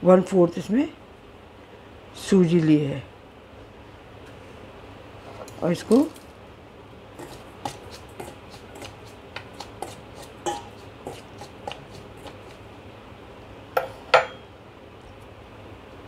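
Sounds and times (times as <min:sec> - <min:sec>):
spoon scraping metal bowl: 0:07.2 - 0:12.6
spoon knocking bowl: 0:10.4 - 0:10.8, 0:13.8 - 0:14.4.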